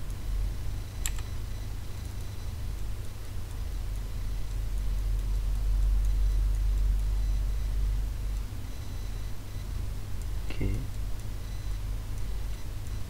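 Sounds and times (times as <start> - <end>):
low electrical hum: 0.0 - 13.0
computer mouse click: 1.0 - 1.4.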